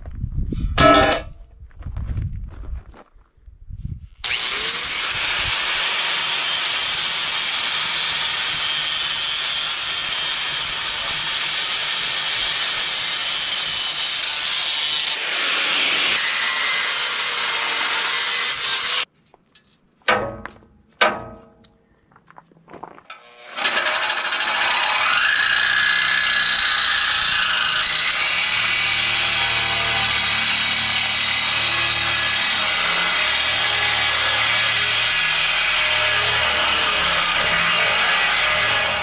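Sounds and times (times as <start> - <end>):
angle grinder grinding steel: 4.2 - 19.1, 23.1 - 39.0
power tool whining: 4.2 - 19.1, 23.1 - 39.0
sharp knocks: 20.1 - 21.6.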